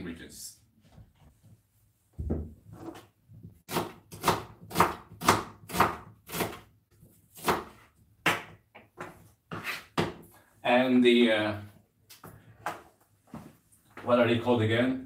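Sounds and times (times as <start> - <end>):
knife chopping on plastic board: 3.7 - 6.7, 7.3 - 10.2.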